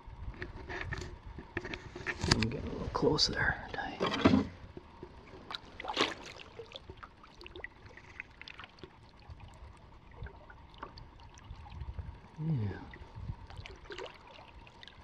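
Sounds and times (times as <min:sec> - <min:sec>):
paddle splash: 0:04.2 - 0:11.9, 0:12.9 - 0:15.0.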